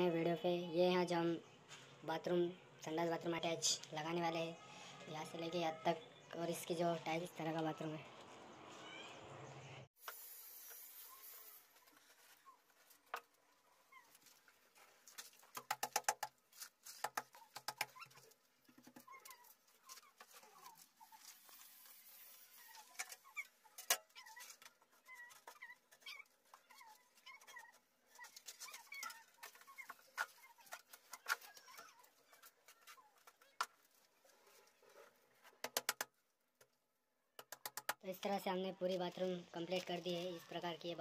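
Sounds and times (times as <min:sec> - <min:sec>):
faint birds chirping: 0:00.0 - 0:09.9
tile work clicks and knocks: 0:35.6 - 0:36.2.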